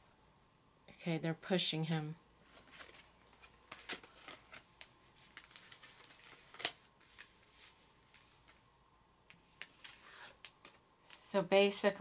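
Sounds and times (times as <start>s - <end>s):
cards tapping and sliding: 2.5s - 8.6s, 9.3s - 10.8s.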